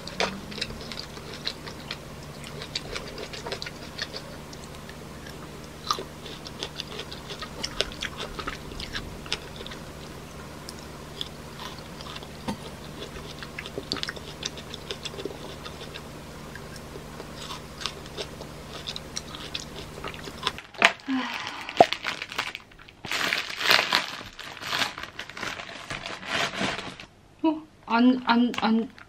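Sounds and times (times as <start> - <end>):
fruit being bitten and chewed: 0.0 - 22.1
faint low hum: 0.0 - 29.0.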